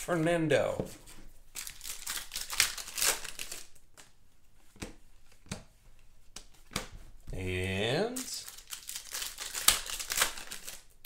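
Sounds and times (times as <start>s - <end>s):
foil wrappers crinkling: 1.6s - 3.8s, 8.1s - 11.0s.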